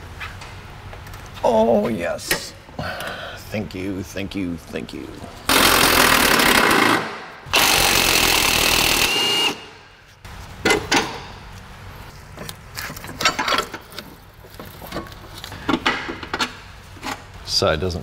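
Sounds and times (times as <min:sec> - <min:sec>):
power tool running with high whine: 0:07.5 - 0:09.7.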